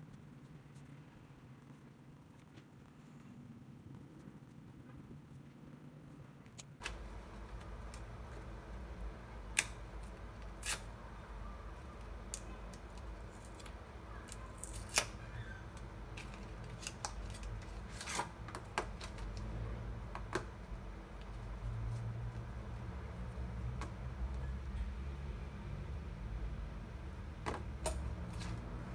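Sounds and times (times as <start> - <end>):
low steady hum: 0.0 - 28.9.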